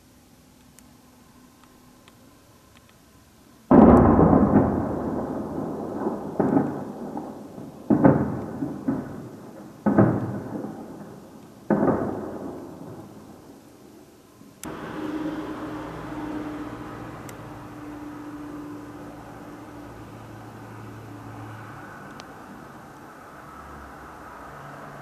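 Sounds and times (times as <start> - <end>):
heavy explosions echoing: 3.7 - 13.2, 14.7 - 19.3.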